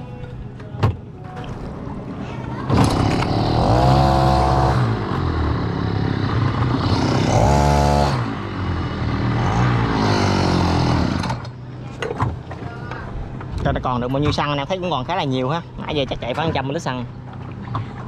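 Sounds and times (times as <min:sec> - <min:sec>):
boat engine revving: 0:02.7 - 0:11.4.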